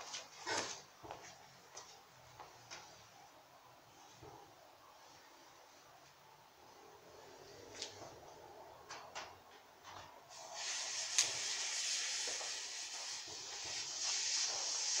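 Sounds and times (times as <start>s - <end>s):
firework fuse fizzing: 10.3s - 15.0s
sharp crackle: 10.6s - 15.0s.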